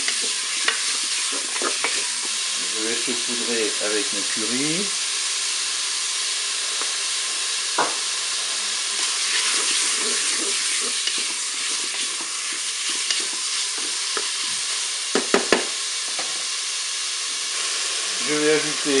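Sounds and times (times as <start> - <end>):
wooden spatula scraping bowl: 0.0 - 2.4, 9.0 - 14.7
meat sizzling in hot oil: 0.0 - 19.0.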